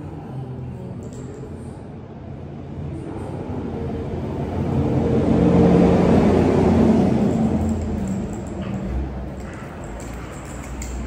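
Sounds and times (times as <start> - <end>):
motor vehicle passing: 3.7 - 11.0.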